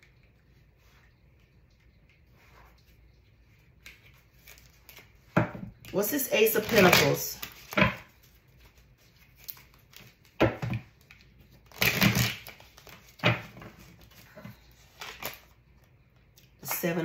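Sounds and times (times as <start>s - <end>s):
cards being shuffled: 3.8s - 15.5s.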